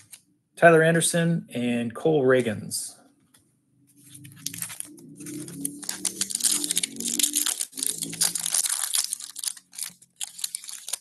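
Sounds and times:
foil wrapper tearing and crinkling: 4.4 - 11.0.

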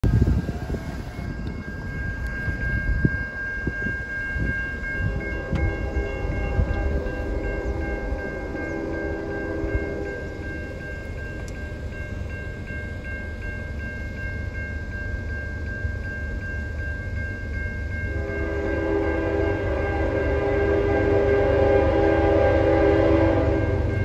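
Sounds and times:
crossing signal bell ringing: 0.0 - 24.0
distant train horn: 4.8 - 11.6, 18.0 - 24.0.

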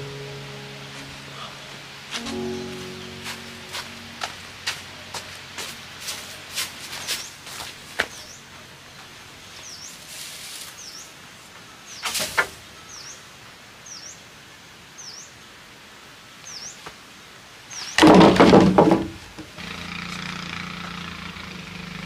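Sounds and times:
bird chirping: 0.0 - 12.1, 12.7 - 14.3, 15.0 - 15.4
wooden log knocking on posts: 18.0 - 19.2
wood clattering: 18.0 - 19.3.

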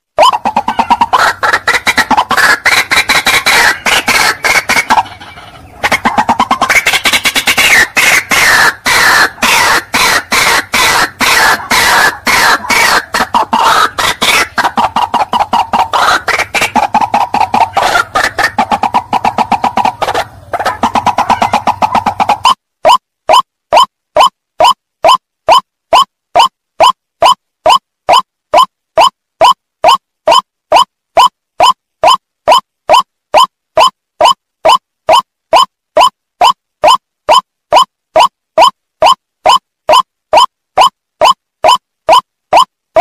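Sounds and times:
waterhen calling: 0.2 - 22.6.

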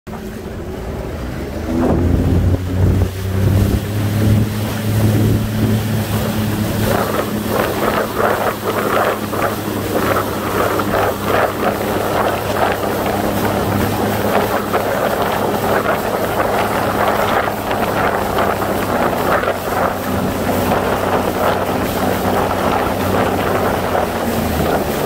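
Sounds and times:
hull slapping water: 0.1 - 25.0
jet ski engine humming: 0.1 - 25.0
wind on microphone: 0.1 - 25.0.

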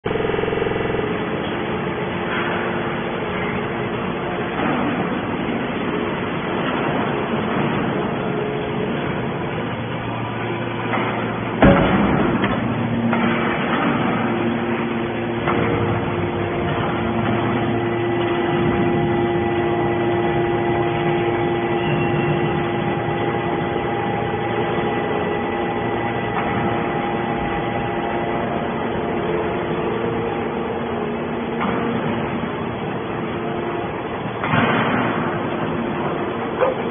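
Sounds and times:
baler machine hum: 0.0 - 36.9
loud metallic clank: 10.4 - 27.8, 34.4 - 36.0.

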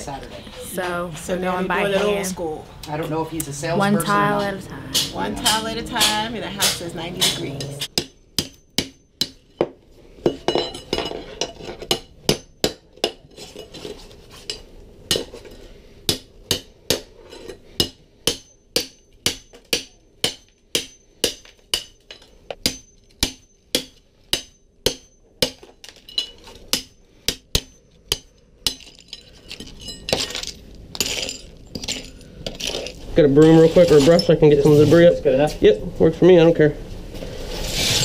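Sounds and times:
hammer striking steel chisel: 5.0 - 11.1, 11.9 - 13.2, 17.8 - 25.6, 26.2 - 29.2.

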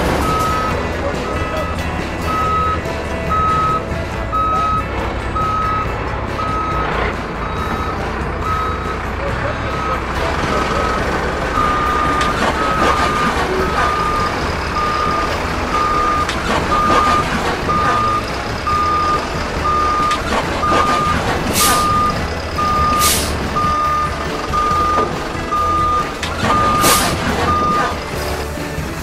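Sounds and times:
truck reversing alarm beeping: 0.0 - 28.5
low diesel engine rumble: 0.0 - 29.0
short air hisses: 21.5 - 21.9, 23.0 - 23.4.

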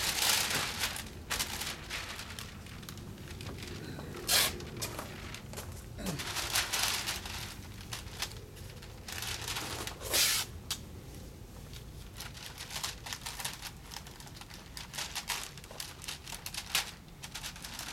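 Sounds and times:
tape ripping: 0.0 - 8.4, 9.1 - 10.5
paper and tape crinkling: 0.0 - 10.8, 11.5 - 17.9.

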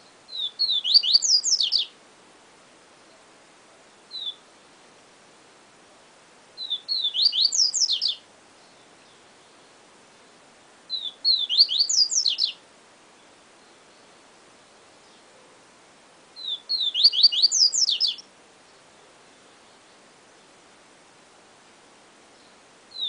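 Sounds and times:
faint steady hiss: 0.0 - 23.0
bird whistling song: 0.3 - 1.9, 4.1 - 4.4, 6.6 - 9.2, 10.9 - 12.6, 16.4 - 18.2, 22.4 - 23.0.

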